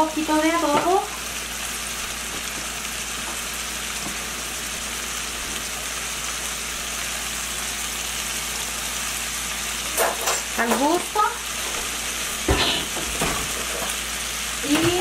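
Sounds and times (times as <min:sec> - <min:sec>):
chicken sizzling in hot oil: 0:00.0 - 0:15.0.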